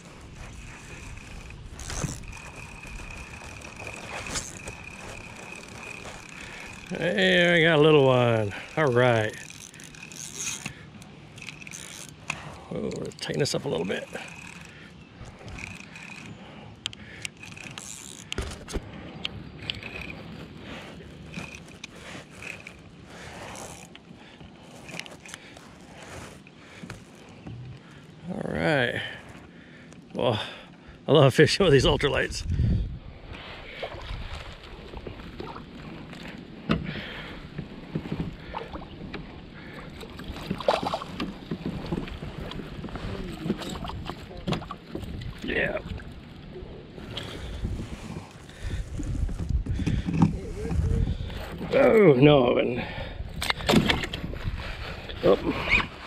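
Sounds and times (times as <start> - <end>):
fish splashing and thrashing: 0.0 - 28.2, 33.6 - 51.6
water lapping against hull: 0.0 - 28.3, 32.5 - 56.0
fishing reel clicking: 0.5 - 18.8, 19.6 - 20.2, 21.2 - 24.0.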